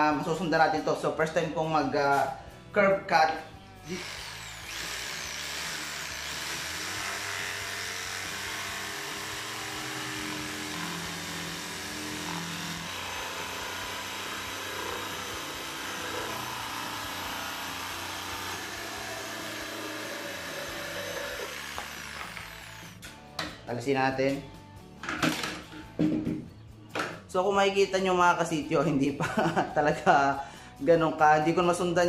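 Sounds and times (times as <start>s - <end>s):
jigsaw cutting wood: 3.8s - 23.0s.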